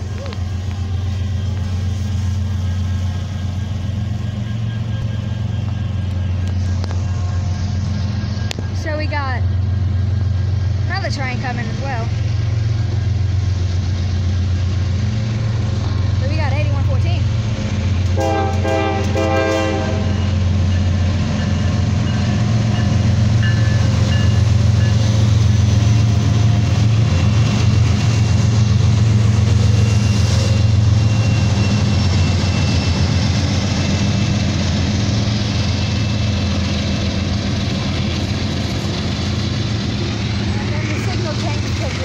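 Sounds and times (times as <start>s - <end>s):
diesel locomotive engine drone: 0.0s - 42.0s
train wheels on rail: 0.0s - 42.0s
train horn blast: 18.1s - 20.4s.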